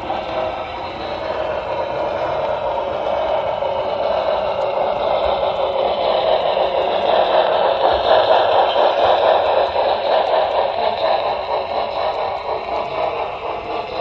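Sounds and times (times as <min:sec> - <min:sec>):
model train motor and wheels rattling: 0:00.0 - 0:14.0.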